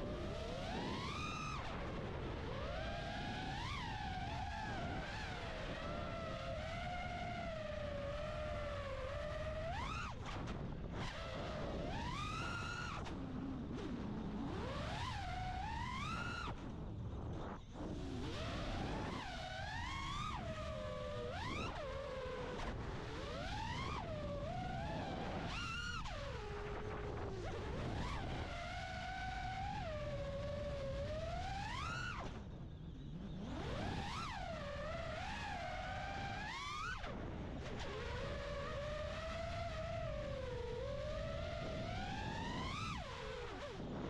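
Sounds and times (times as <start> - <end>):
low rumble of prop wash and wind: 0.0 - 44.0.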